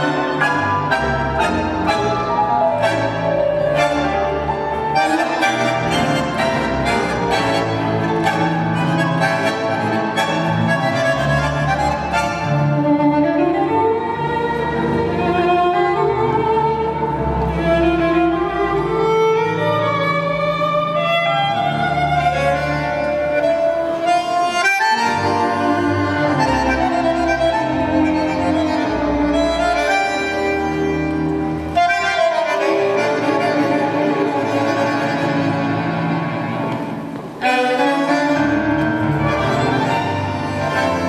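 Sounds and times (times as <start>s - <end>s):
tango orchestra with violins: 0.0s - 41.0s.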